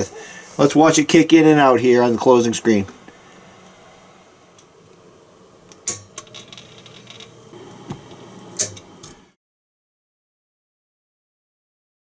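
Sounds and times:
low background hum: 0.0 - 9.4.

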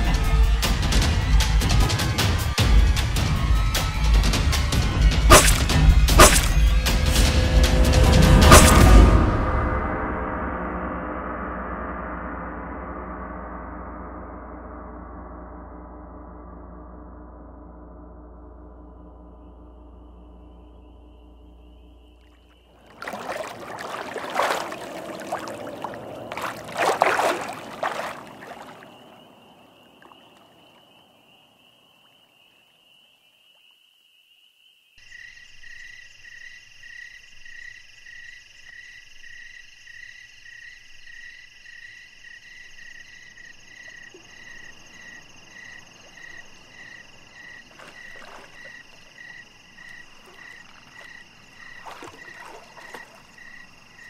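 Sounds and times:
water splashing from wading: 5.3 - 6.6, 8.5 - 9.0, 22.3 - 31.0, 46.0 - 54.0
frogs croaking: 18.7 - 54.0.

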